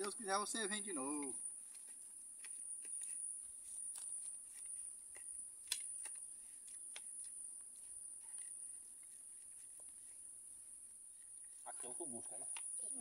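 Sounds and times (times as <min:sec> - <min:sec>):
high-pitched insect drone: 0:11.1 - 0:13.0.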